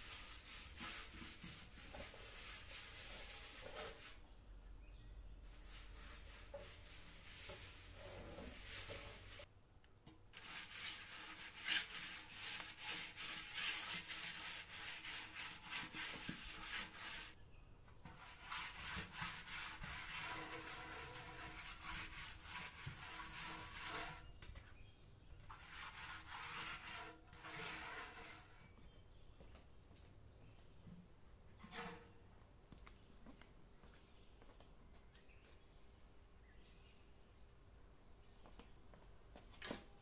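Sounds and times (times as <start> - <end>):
hand scraping metal pot: 5.6 - 9.5, 10.4 - 17.4, 18.0 - 24.4, 25.4 - 28.7, 31.6 - 32.2.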